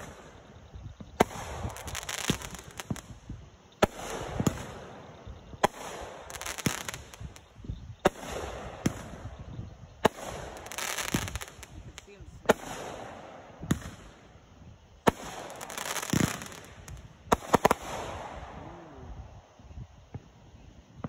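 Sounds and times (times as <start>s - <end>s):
fireworks banging and crackling: 0.0s - 19.0s.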